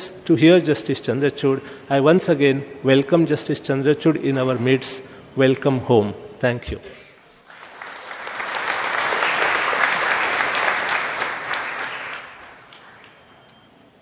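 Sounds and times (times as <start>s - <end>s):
audience applauding: 7.2s - 13.5s.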